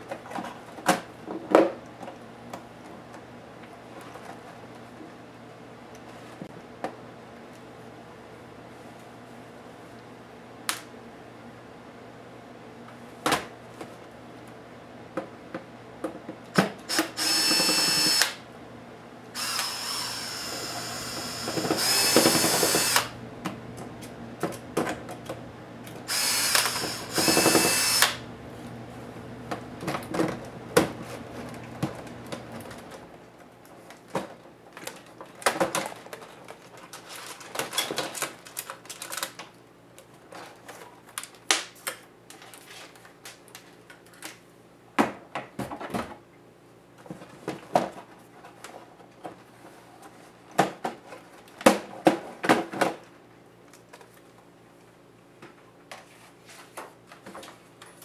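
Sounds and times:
electric screwdriver motor whine: 0:16.9 - 0:18.4, 0:19.4 - 0:23.2, 0:26.1 - 0:28.2.

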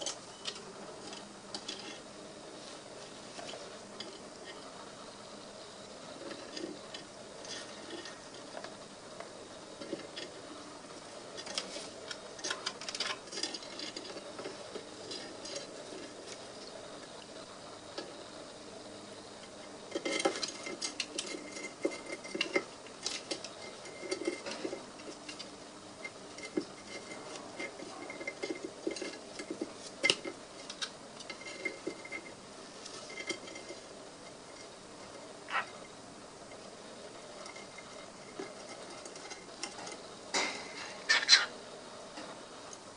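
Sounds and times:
bird claws scratching and clicking: 0:11.4 - 0:16.4, 0:19.9 - 0:25.5.

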